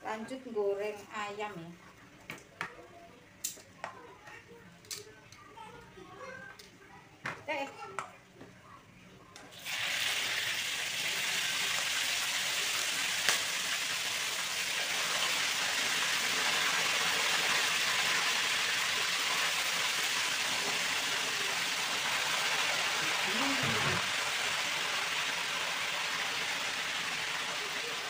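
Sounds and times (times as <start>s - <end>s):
chicken sizzling in hot oil: 9.5s - 28.0s.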